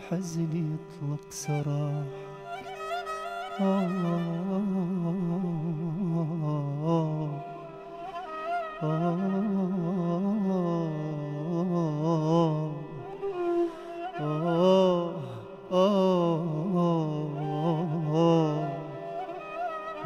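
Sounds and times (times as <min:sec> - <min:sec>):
person singing melismatic phrases: 0:14.2 - 0:19.3.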